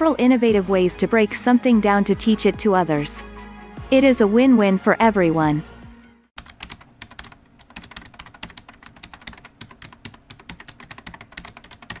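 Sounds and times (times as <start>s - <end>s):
computer keyboard typing: 6.4s - 12.0s.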